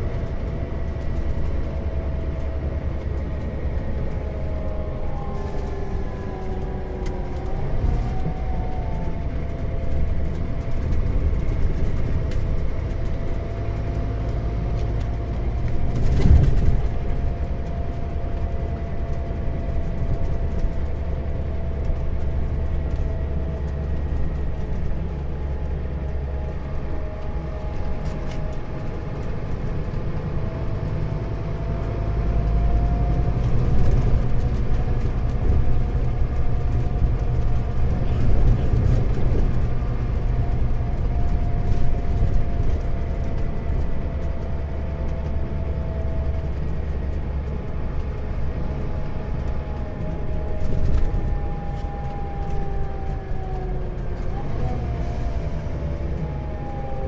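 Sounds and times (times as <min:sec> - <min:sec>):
bus engine droning: 0:00.0 - 0:57.0.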